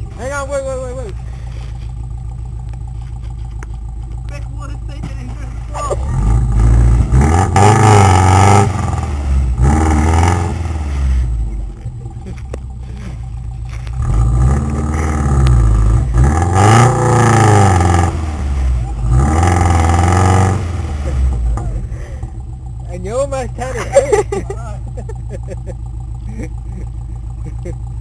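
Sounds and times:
car engine revving: 0.0 - 28.0.

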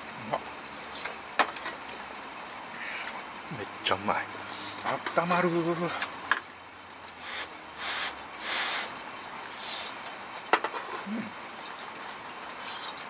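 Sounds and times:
breathy hisses while eating: 7.2 - 8.9, 9.5 - 10.0.

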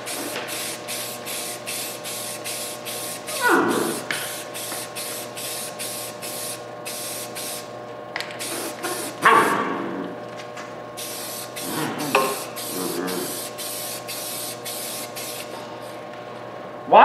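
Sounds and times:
spray can spraying bursts: 0.0 - 7.7, 8.4 - 9.2, 11.0 - 15.6.

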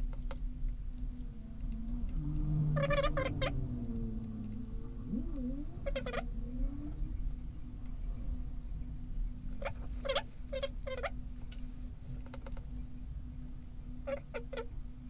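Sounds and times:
steady low hum: 0.0 - 15.0
high-pitched animal squeaks: 5.1 - 6.3, 9.6 - 11.2, 14.1 - 14.7.

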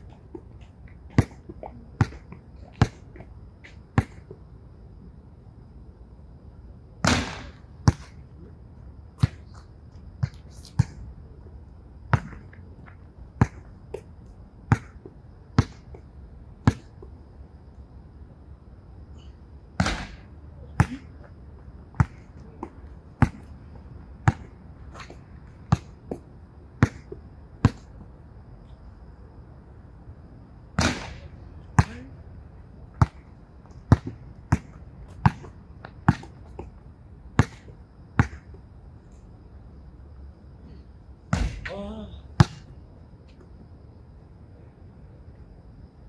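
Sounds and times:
basketball bouncing on hard court: 1.1 - 3.0, 12.1 - 12.5, 14.7 - 15.0, 21.9 - 23.5, 24.2 - 26.2, 33.9 - 36.6, 37.4 - 38.4.

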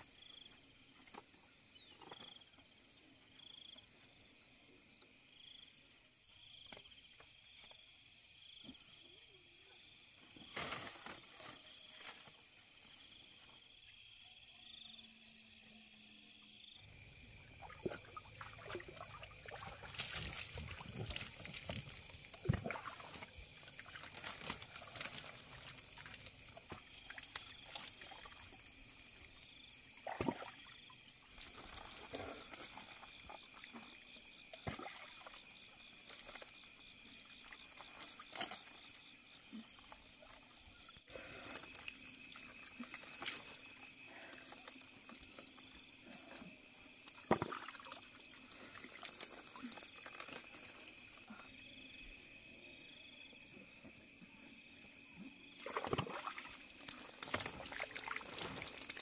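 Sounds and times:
water pouring and splashing: 17.5 - 29.4, 30.0 - 40.4, 41.4 - 45.8, 47.0 - 51.2, 55.6 - 59.0.

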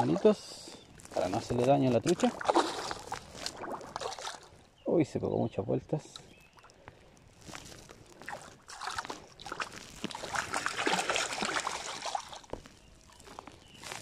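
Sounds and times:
river water splashing: 2.0 - 4.6, 8.2 - 12.5.

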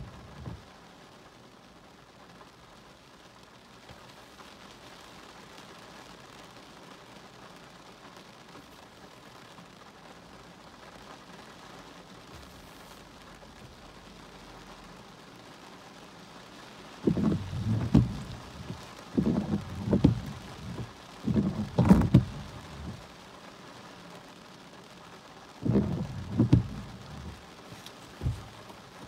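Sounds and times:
rain falling on car: 0.0 - 29.0
wind gusts buffeting microphone: 17.0 - 23.0, 25.6 - 27.4.

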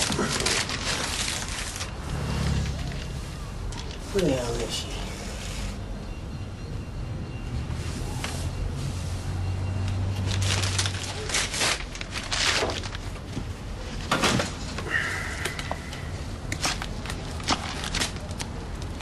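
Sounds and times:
paper packet crinkling: 0.0 - 2.0, 10.2 - 14.8, 16.4 - 19.0.

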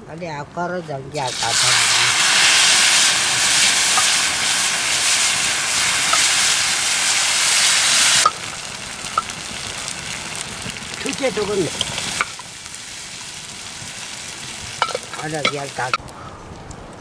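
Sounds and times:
liquid sizzling in hot oil: 1.1 - 16.0
spoon clinking against pots: 14.8 - 15.7.

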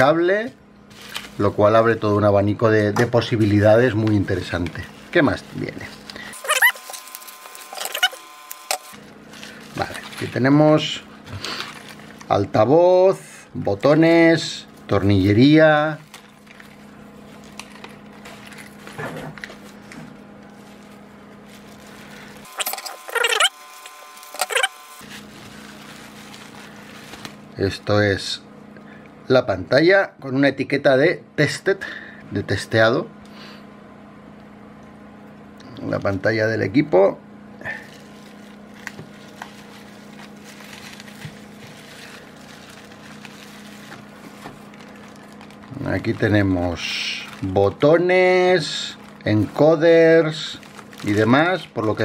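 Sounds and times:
low electrical hum: 0.0 - 52.0
bubble wrap crinkling and squeaking: 0.9 - 12.5, 13.7 - 27.6, 37.8 - 52.0.

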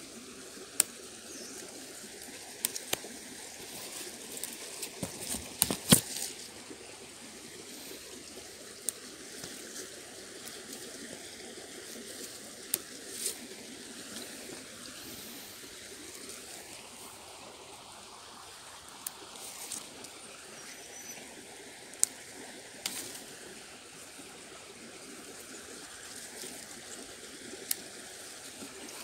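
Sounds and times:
outdoor hiss: 0.0 - 29.0
twigs and leaves snapping: 0.7 - 6.9, 8.8 - 14.7, 21.9 - 23.4, 25.3 - 29.0.

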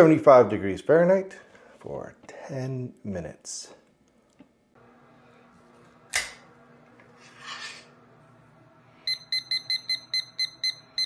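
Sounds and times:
brief scrape: 7.2 - 7.9
kitchen timer beeping: 9.1 - 11.0.

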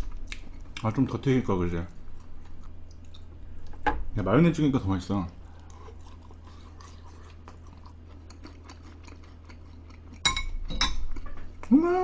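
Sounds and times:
chewing crunchy fries: 0.0 - 3.7, 5.4 - 10.3.

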